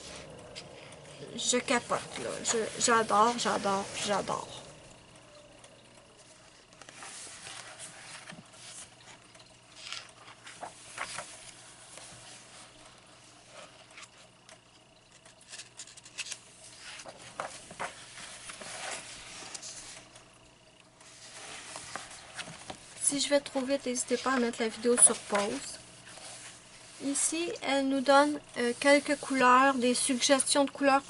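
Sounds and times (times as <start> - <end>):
paper crinkles: 6.6 - 12.8, 15.0 - 20.2, 23.5 - 27.2
paper pages turning: 6.7 - 12.7, 15.1 - 20.2, 21.0 - 22.8, 23.4 - 30.8.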